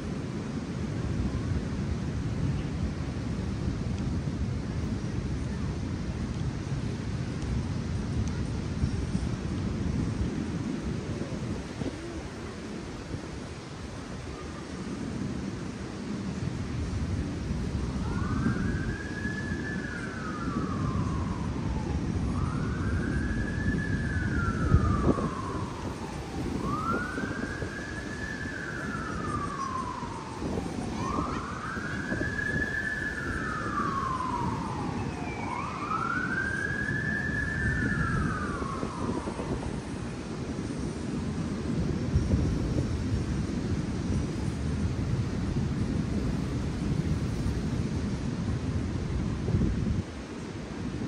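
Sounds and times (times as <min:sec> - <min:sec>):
wind rumble on microphone: 0:00.0 - 0:51.0
emergency siren wailing: 0:17.5 - 0:41.6.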